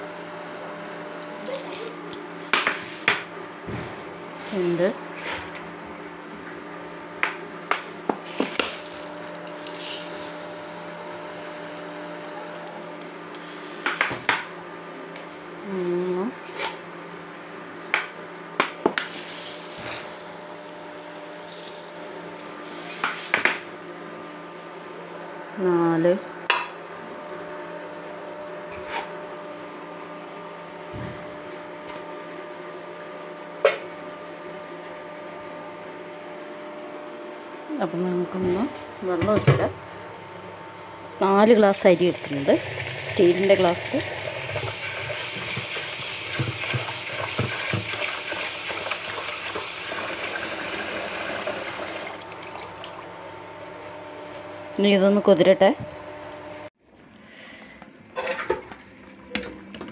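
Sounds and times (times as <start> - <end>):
rice washed in water: 42.1 - 53.2.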